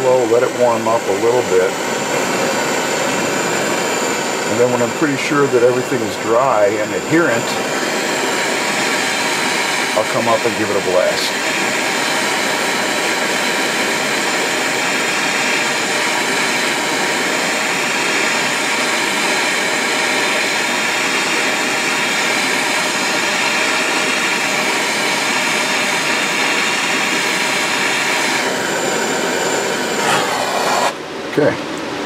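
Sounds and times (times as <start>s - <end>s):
gas torch hissing: 0.0s - 31.6s.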